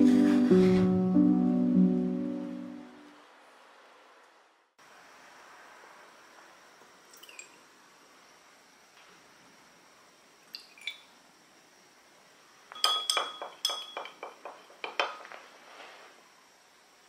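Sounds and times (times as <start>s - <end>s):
spoon clinking against glass: 12.7s - 15.2s.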